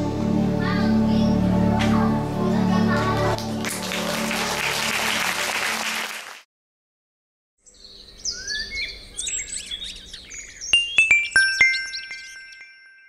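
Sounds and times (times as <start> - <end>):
audience applause: 2.9 - 6.4
birds chirping: 7.6 - 12.8
bright chime strikes: 10.7 - 13.0.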